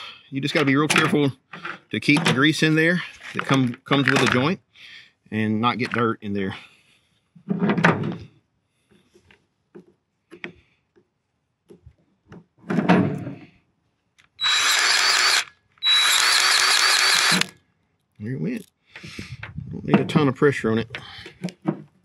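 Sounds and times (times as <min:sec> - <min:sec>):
grease gun motor whining: 0:14.4 - 0:17.6.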